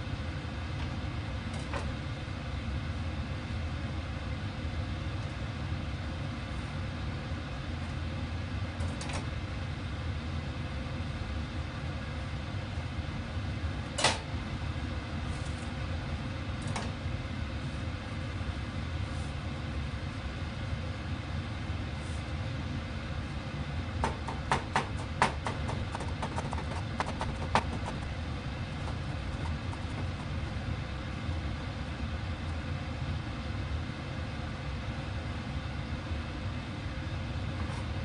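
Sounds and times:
steady low hum: 0.0s - 38.0s
knife chopping on cutting board: 24.0s - 28.1s.

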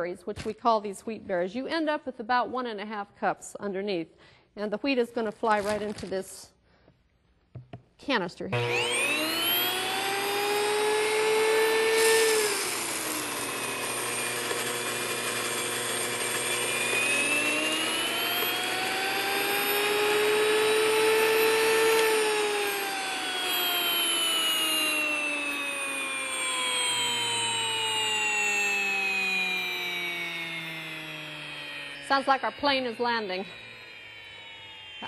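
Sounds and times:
grain mill motor whining: 8.6s - 35.0s.

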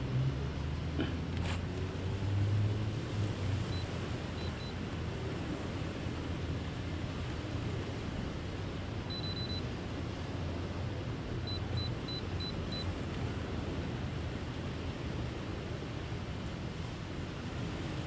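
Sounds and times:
high electronic beeps: 9.1s - 9.6s, 11.5s - 12.9s.

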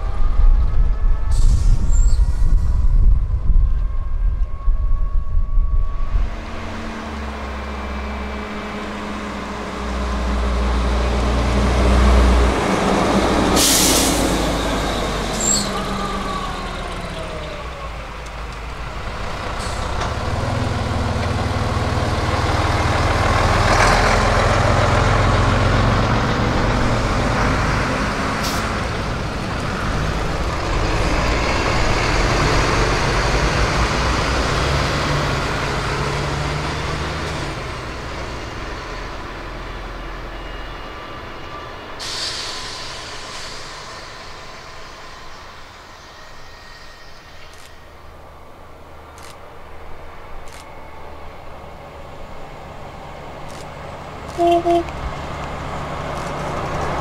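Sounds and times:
bus diesel engines passing: 0.0s - 57.0s
air brakes hiss: 1.3s - 2.9s, 13.6s - 14.5s, 42.0s - 48.0s.

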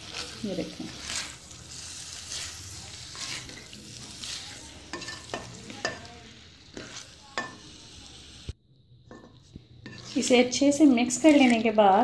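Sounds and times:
frying sizzle: 0.0s - 12.0s
spatula scraping metal pan: 0.9s - 6.1s, 9.1s - 12.0s.

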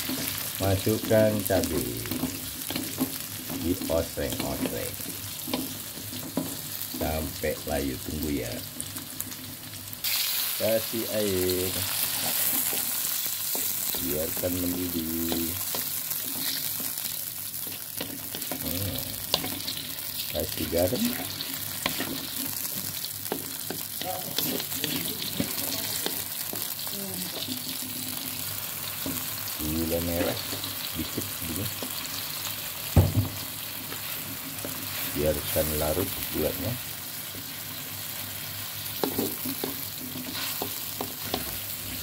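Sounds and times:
food sizzling in a wok: 0.0s - 42.0s
wooden spatula knocking wok: 1.6s - 7.3s, 17.6s - 26.8s, 32.9s - 34.0s, 38.9s - 42.0s
spatula knocking on pan: 32.9s - 33.4s.

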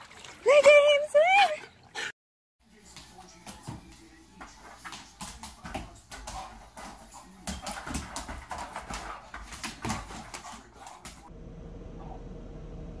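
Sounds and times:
dog claws scrabbling on hard floor: 4.4s - 11.3s.

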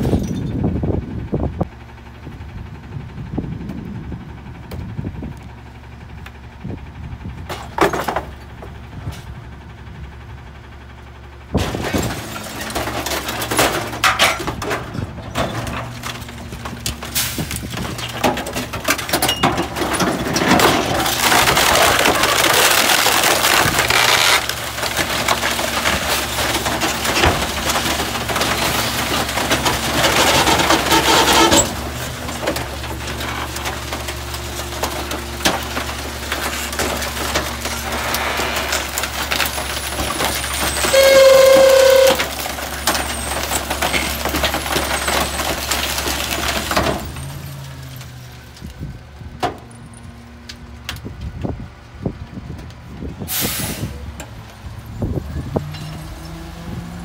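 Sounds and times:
garbage truck engine and hydraulics: 0.0s - 57.0s
wood cracking and splintering: 11.5s - 49.6s.

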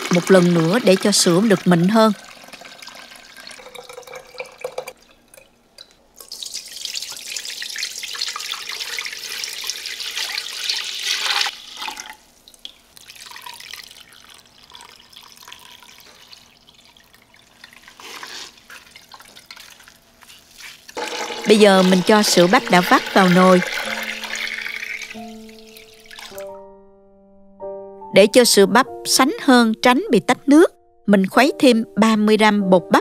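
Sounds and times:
liquid pouring into pot: 0.0s - 26.6s
trickle and drips: 0.2s - 21.0s, 22.3s - 26.6s.

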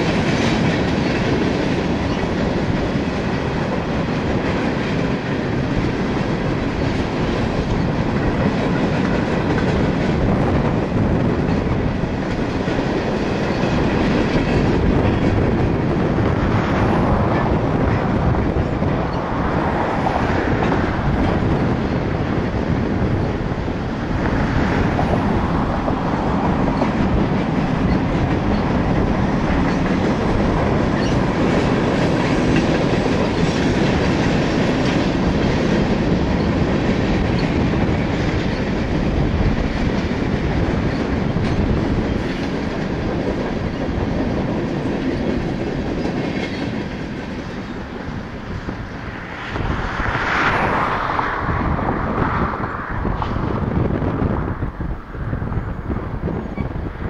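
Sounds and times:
wheels clacking over rail joints: 0.0s - 52.3s
freight cars rumbling: 0.0s - 57.0s.

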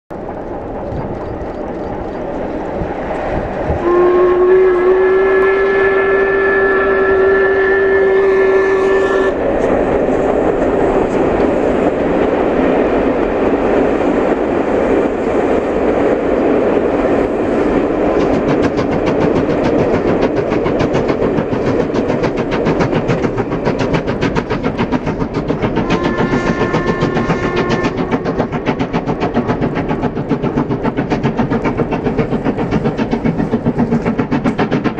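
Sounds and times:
steam exhaust chuffing: 0.1s - 34.9s
train rumble: 0.1s - 34.9s
steam whistle blast: 3.8s - 9.4s, 25.8s - 28.3s.

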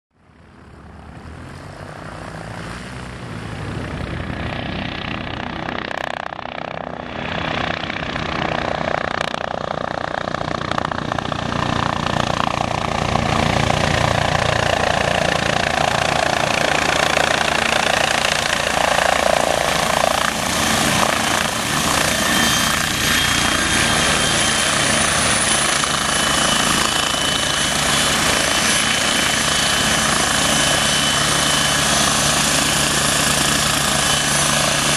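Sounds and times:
helicopter rotor noise: 0.3s - 34.9s
high turbine whine: 0.3s - 34.9s.

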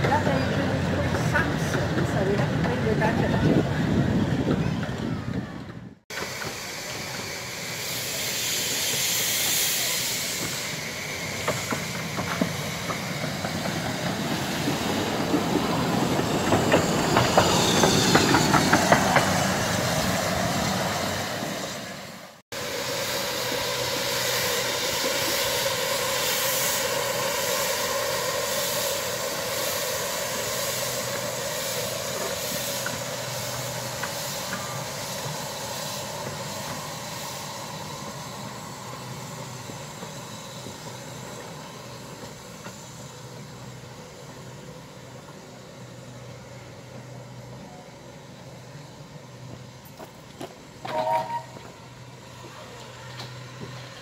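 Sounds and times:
steam locomotive hissing: 0.0s - 54.0s
train wheels clicking over rails: 4.4s - 20.7s, 22.8s - 44.4s.

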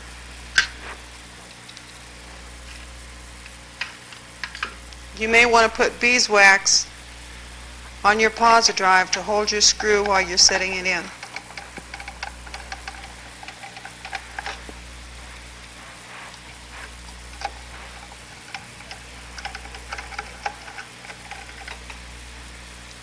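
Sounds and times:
low hum: 4.8s - 23.0s
screws and screwdriver clicking on metal: 9.8s - 14.7s, 17.3s - 22.0s.

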